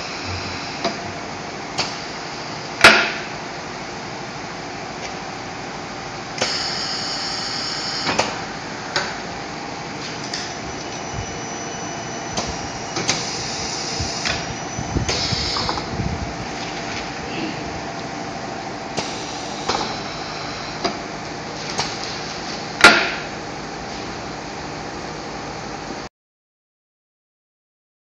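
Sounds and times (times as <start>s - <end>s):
machine hum: 0.0s - 26.1s
pneumatic cylinders clacking: 6.4s - 9.2s, 12.2s - 16.0s, 18.9s - 21.0s, 21.6s - 23.3s
air hissing: 12.4s - 16.1s, 19.0s - 21.0s.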